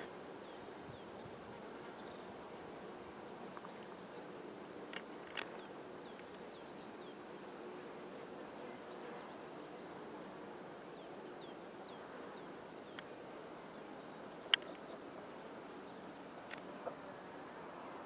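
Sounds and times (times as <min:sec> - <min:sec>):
small clicks: 0:04.9 - 0:06.4.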